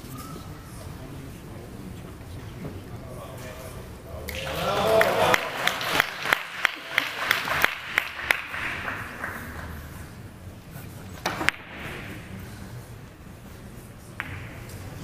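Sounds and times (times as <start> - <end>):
audience applause: 4.3 - 9.8.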